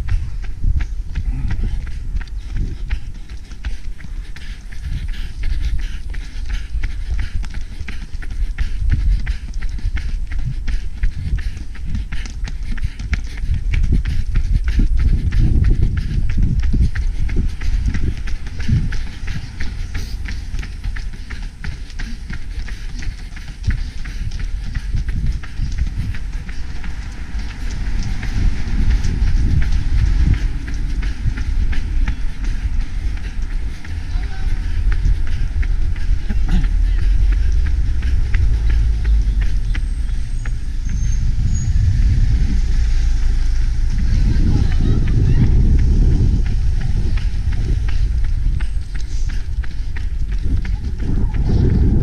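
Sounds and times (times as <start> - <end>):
low rumble: 0.0 - 52.0
running footsteps on asphalt: 0.0 - 52.0.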